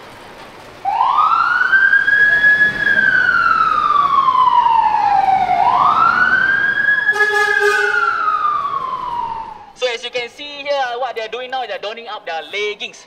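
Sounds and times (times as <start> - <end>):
emergency vehicle siren wailing: 0.8 - 9.8.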